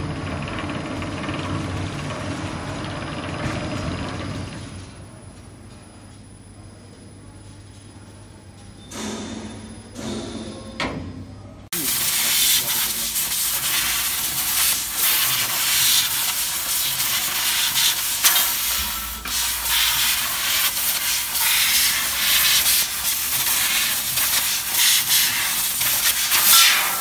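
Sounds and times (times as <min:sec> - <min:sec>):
laser cutting head hissing: 0:11.8 - 0:27.0.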